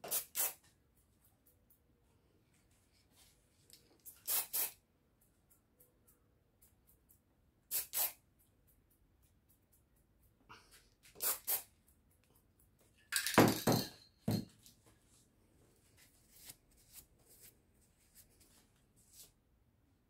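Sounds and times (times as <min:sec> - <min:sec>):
spray cans clattering: 0:13.1 - 0:14.5
spray cans knocking: 0:13.1 - 0:14.5.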